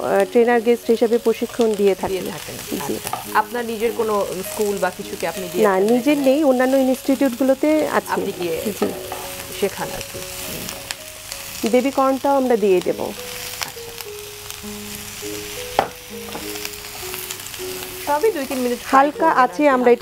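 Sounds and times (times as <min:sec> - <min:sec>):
soft background music: 0:00.0 - 0:20.0
vegetables sizzling in oil: 0:00.0 - 0:20.0
spatula scraping and tapping pan: 0:03.0 - 0:03.4, 0:08.1 - 0:09.5.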